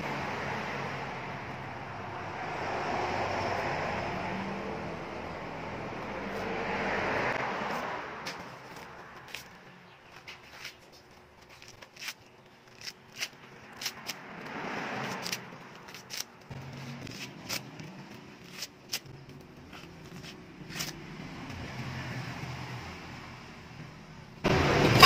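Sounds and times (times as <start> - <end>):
coconut husk fibres tearing: 11.4 - 21.0.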